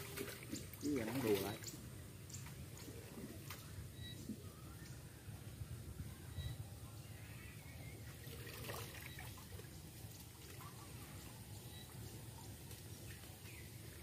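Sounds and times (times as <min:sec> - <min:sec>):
water trickling and splashing: 0:00.0 - 0:04.5, 0:07.5 - 0:14.0.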